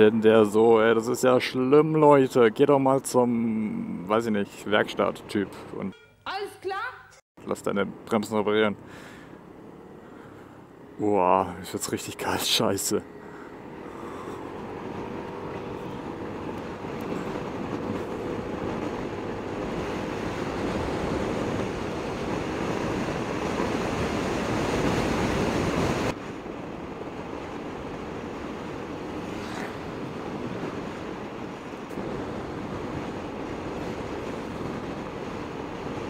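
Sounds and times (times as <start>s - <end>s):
road noise: 0.0s - 36.0s
wind rushing over microphone: 7.9s - 36.0s.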